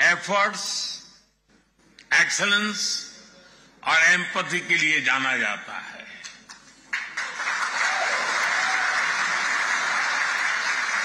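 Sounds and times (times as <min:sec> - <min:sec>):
audience applauding: 0:06.9 - 0:11.0.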